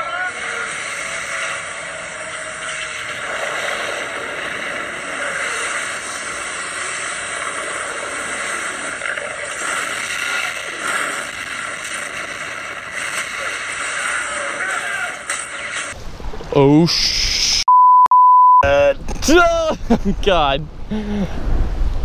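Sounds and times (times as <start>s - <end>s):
ocean wave roaring: 0.0s - 16.0s.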